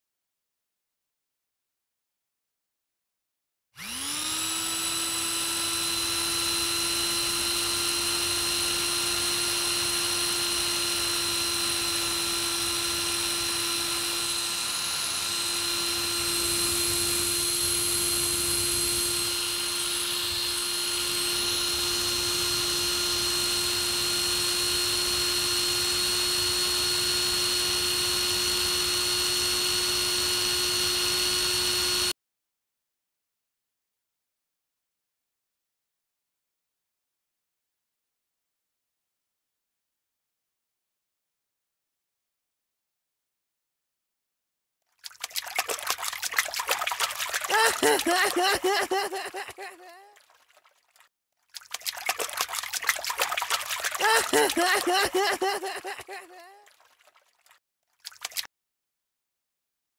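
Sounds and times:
power tool whining: 3.8 - 32.1, 46.9 - 49.9, 53.2 - 56.5.

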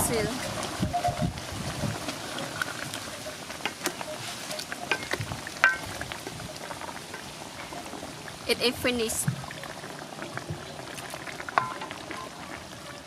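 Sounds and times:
curry simmering: 0.0 - 13.0
spatula stirring: 1.7 - 8.0.

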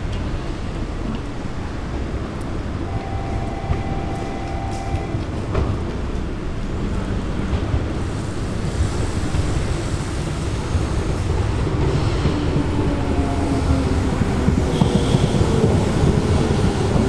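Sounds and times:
train rumbling along track: 0.0 - 17.0
thin high tone: 2.9 - 5.2.

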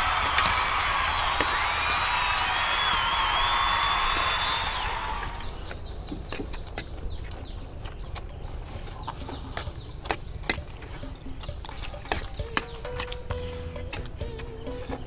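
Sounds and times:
bird chirps: 4.3 - 15.0.

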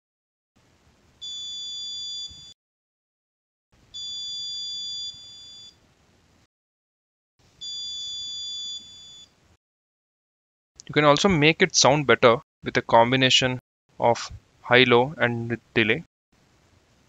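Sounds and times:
electronic buzzer beeps: 1.2 - 2.6, 4.0 - 5.8, 7.6 - 9.3.

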